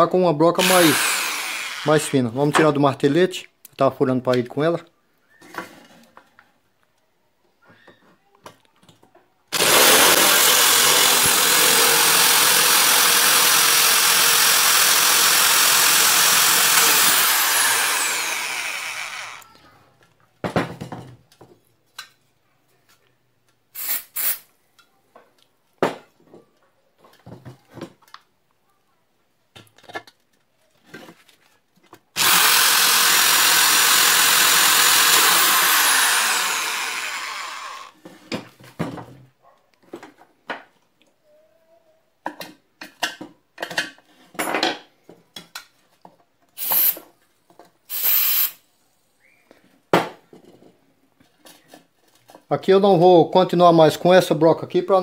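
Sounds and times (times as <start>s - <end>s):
cordless drill drilling into screw: 0.6s - 2.2s, 9.5s - 19.4s, 32.2s - 38.0s, 47.9s - 48.6s.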